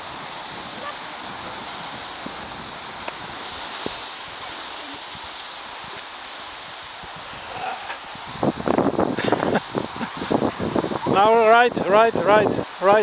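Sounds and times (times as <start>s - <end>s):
skis gliding over snow: 0.0s - 13.0s.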